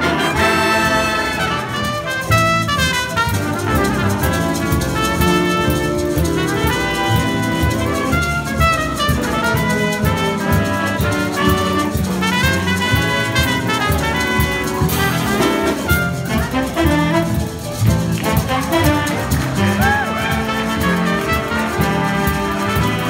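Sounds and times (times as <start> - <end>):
jazz big band playing: 0.0 - 23.0
trumpet: 0.0 - 23.0.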